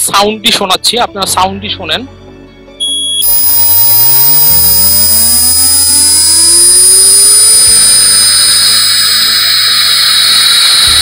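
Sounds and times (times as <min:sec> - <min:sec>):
spindle motor whine rising: 0:02.8 - 0:11.0.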